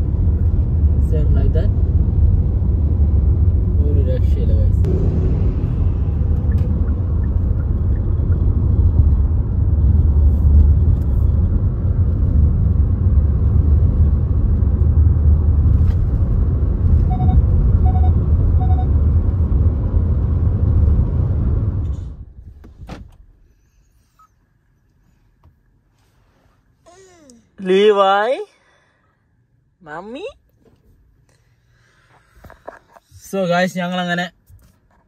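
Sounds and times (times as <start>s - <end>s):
car tyres and engine rumble: 0.0s - 26.8s
short electronic beeps: 17.1s - 18.9s.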